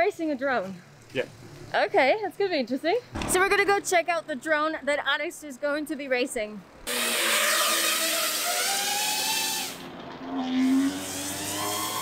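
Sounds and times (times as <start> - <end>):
quadcopter motors whining: 6.8 - 12.0.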